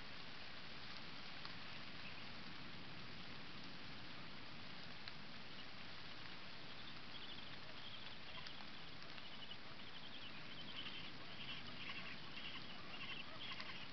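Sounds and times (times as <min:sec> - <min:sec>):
steady hiss: 0:00.0 - 0:13.9
penguin chicks peeping: 0:06.6 - 0:13.9.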